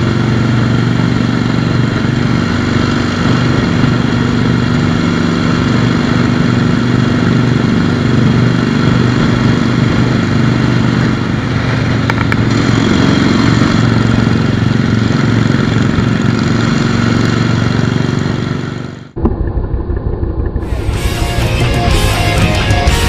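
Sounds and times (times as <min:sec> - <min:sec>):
motorcycle engine cruising: 0:00.0 - 0:23.0
rock music: 0:20.6 - 0:23.0.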